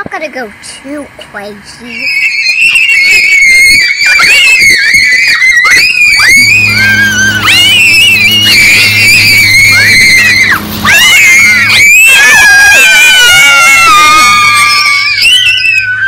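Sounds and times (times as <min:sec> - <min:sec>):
children shrieking and screaming: 0:01.8 - 0:16.0
steady low hum: 0:04.6 - 0:16.0.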